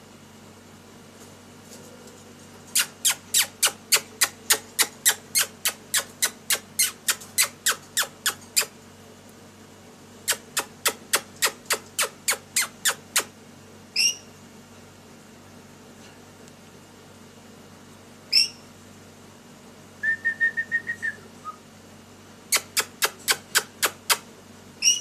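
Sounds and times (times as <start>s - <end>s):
parrot shrill calls: 14.0s - 14.3s, 18.3s - 18.6s, 24.8s - 25.0s.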